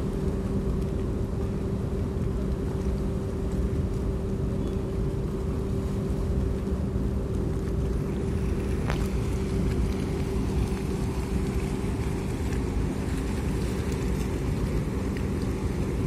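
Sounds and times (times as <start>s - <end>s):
churning water: 5.4s - 16.0s.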